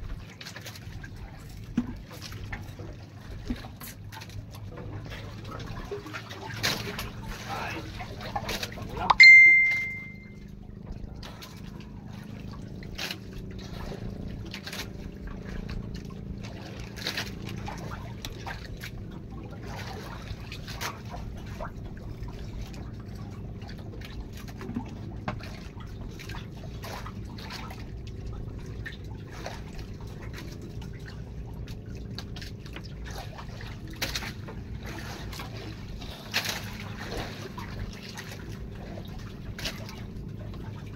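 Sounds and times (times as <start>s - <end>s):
low hum: 0.0s - 40.9s
water lapping against hull: 0.0s - 40.9s
sharp ringing ding: 9.1s - 10.4s.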